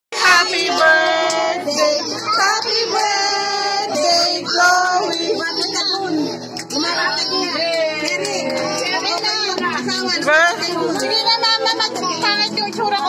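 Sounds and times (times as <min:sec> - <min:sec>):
child and woman singing: 0:00.2 - 0:07.8
music: 0:00.2 - 0:13.0.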